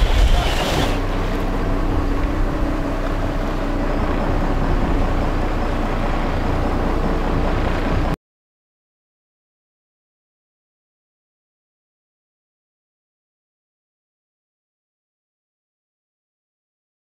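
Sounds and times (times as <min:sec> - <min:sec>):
wind and water rushing: 0:00.0 - 0:08.1
boat engine humming: 0:00.0 - 0:08.2.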